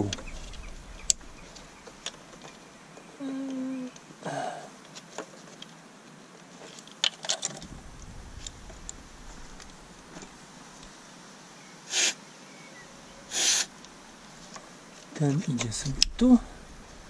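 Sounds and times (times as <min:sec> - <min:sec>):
person humming: 0:03.2 - 0:04.4.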